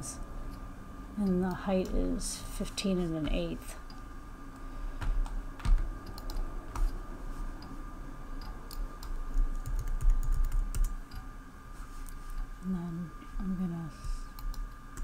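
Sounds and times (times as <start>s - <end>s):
computer keyboard typing: 5.2s - 6.9s, 8.4s - 11.2s, 14.4s - 15.0s.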